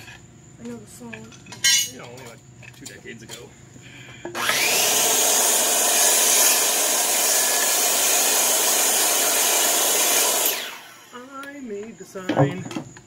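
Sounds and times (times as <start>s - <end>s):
circular saw cutting wood: 4.3s - 11.4s.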